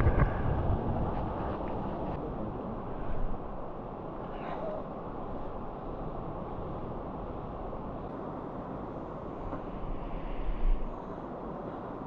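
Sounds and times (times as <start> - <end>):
low rumble: 0.0 - 2.2.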